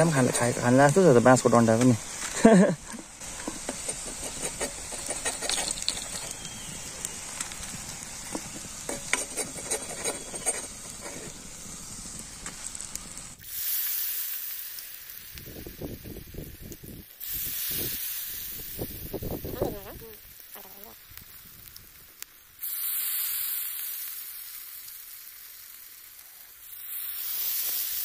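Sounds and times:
hot oil deep-frying sizzle: 0.0 - 28.0
steel spoon clicks and scrapes: 3.4 - 6.6, 8.3 - 11.3.

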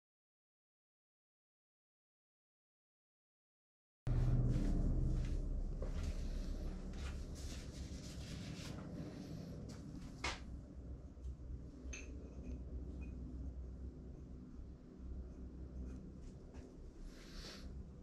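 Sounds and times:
low room hum: 4.1 - 18.0.

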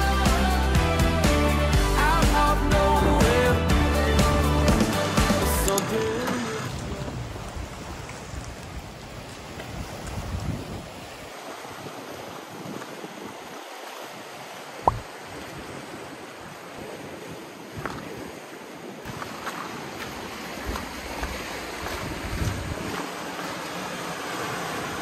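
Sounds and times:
sea waves washing on shore: 2.0 - 25.0
wind buffeting microphone: 6.8 - 13.6, 14.8 - 23.4.

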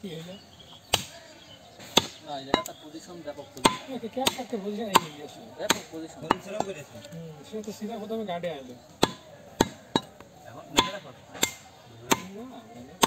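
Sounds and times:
cleaver chopping on wooden block: 3.6 - 6.7, 9.0 - 10.1, 10.7 - 12.4.

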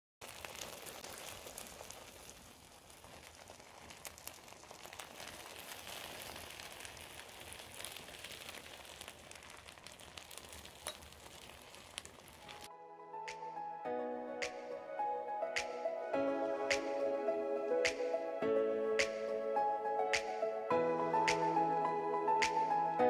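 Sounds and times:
pastry sizzling with crackles: 0.2 - 12.7.

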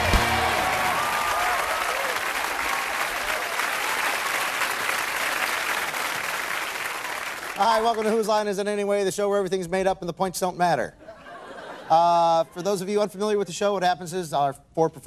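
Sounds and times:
music: 0.0 - 1.0
audience applauding: 0.0 - 8.2.

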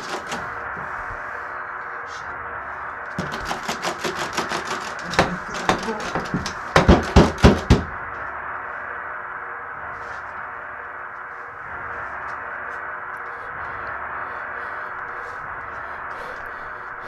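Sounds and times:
steady hiss: 0.0 - 17.0
knocking on a door: 5.1 - 7.9.

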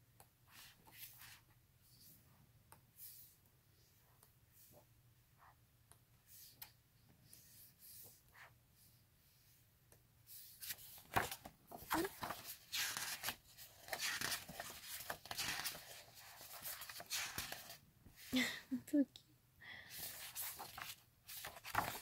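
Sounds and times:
book pages turning: 10.5 - 17.8, 20.0 - 22.0.

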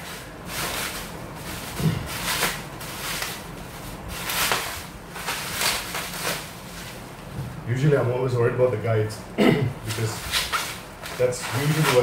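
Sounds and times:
bubble wrap rustling: 0.0 - 7.3, 9.8 - 12.0.

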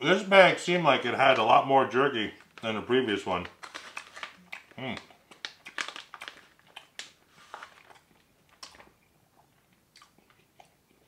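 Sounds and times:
plastic bag crinkling: 1.2 - 9.0
chewing jerky: 3.9 - 11.0.

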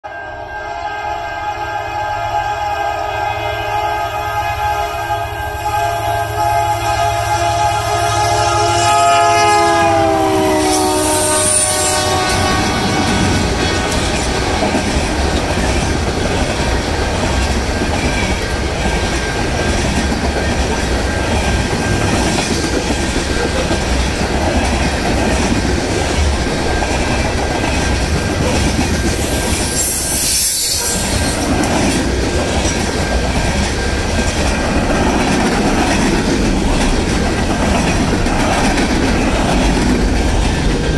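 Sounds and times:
freight train wheels clattering: 9.5 - 40.9
high wheel squeal: 28.9 - 31.5.

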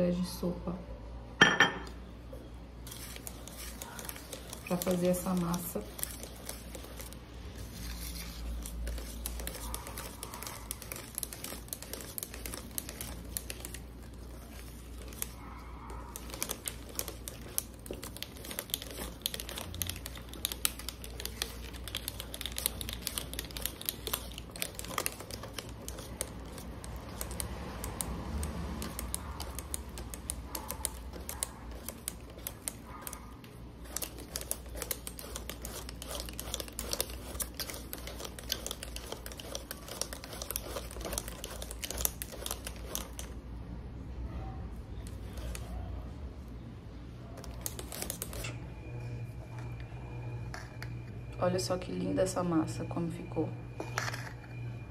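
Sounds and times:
utensil clicking against bowl: 16.2 - 33.2.

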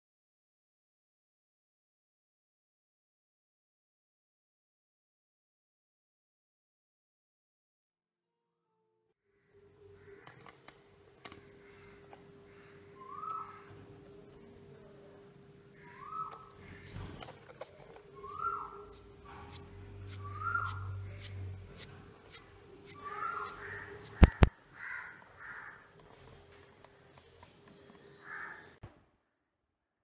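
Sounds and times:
nestling birds high chirps: 9.8 - 24.5
steady hum: 10.9 - 24.5
lower bird call: 11.6 - 13.8, 15.7 - 17.2, 18.1 - 25.7.

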